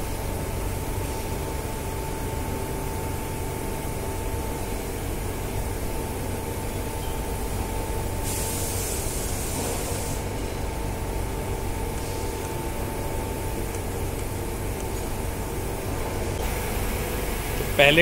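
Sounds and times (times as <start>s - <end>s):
machine hum with thin whine: 0.0s - 18.0s
hiss: 8.2s - 10.4s.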